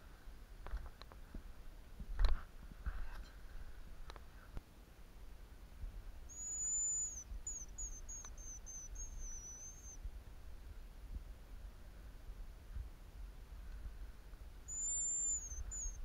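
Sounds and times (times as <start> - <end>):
grouse whistling: 6.3 - 10.0, 14.7 - 16.0.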